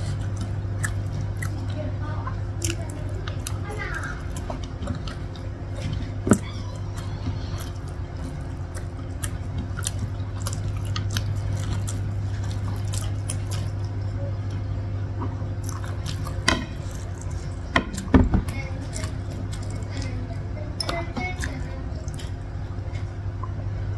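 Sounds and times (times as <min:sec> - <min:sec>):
chewing: 0:00.0 - 0:14.6, 0:15.2 - 0:23.2
low hum: 0:00.0 - 0:23.9
fingers squishing food: 0:02.4 - 0:14.6, 0:15.2 - 0:23.6.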